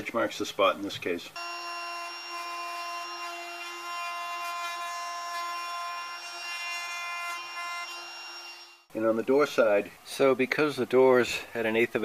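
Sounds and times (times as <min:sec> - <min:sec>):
router cutting wood: 0:01.4 - 0:08.9.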